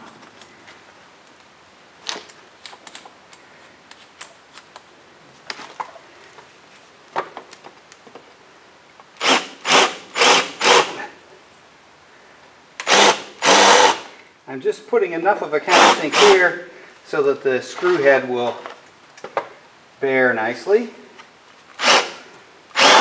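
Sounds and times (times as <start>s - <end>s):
drill bit cutting into wood: 9.2s - 11.0s, 12.8s - 14.1s, 15.7s - 16.4s, 21.8s - 23.0s.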